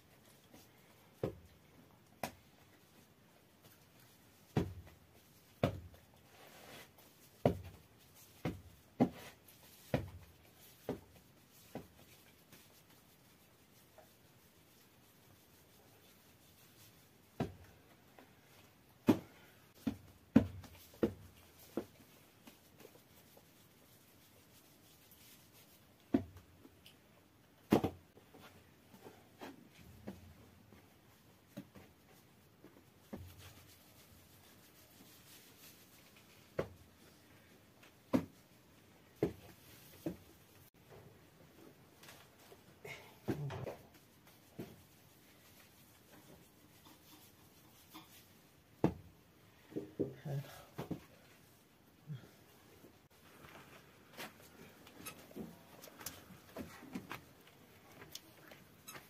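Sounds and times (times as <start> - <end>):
hands rubbing on flour: 20.6 - 26.0, 32.2 - 37.1, 43.9 - 48.5.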